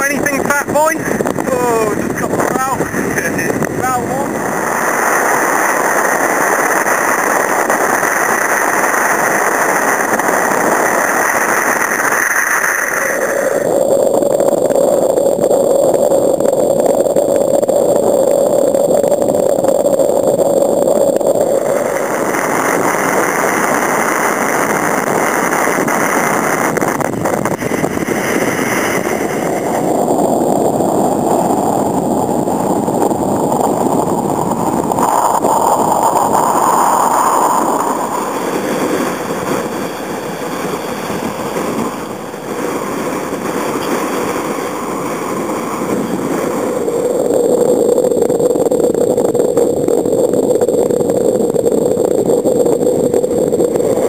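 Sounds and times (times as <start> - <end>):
surf breaking around kayak: 0.0 - 13.6
wind noise on microphone: 0.0 - 54.0.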